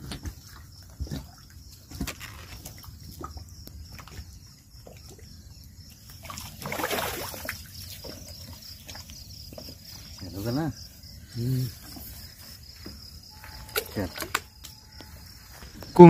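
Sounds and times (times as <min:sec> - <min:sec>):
water sloshing in bucket: 0:00.0 - 0:10.4.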